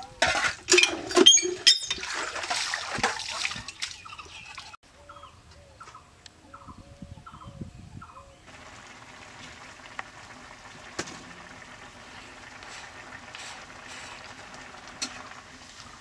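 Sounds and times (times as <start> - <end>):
vegetables simmering in a pan: 8.5 - 16.0.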